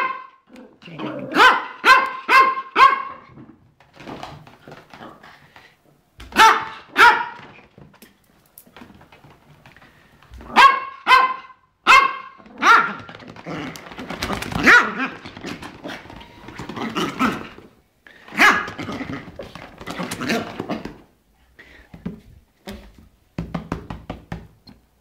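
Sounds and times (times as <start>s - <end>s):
small dog yapping: 1.2s - 3.3s, 6.4s - 7.5s, 10.5s - 13.8s, 14.5s - 16.0s.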